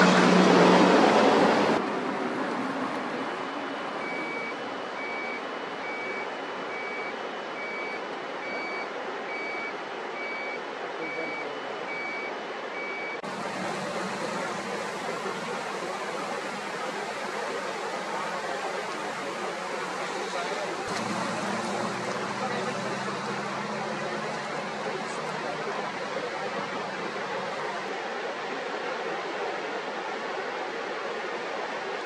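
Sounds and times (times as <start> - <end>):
reversing alarm beeping: 4.0 - 27.8
steady rushing noise: 13.2 - 32.0.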